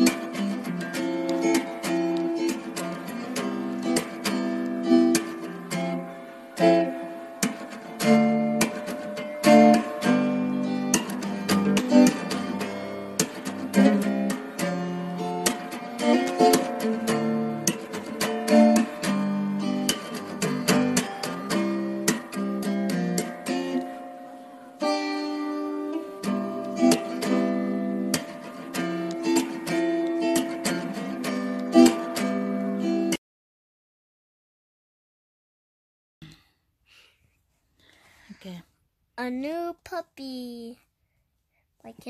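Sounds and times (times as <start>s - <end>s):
acoustic guitar music: 0.0s - 33.2s.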